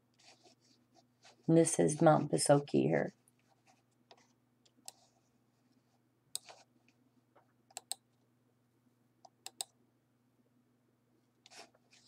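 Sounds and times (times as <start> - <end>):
faint low hum: 0.0 - 12.0
computer mouse clicks: 4.1 - 5.1, 6.3 - 6.6, 7.7 - 8.1, 9.2 - 9.8.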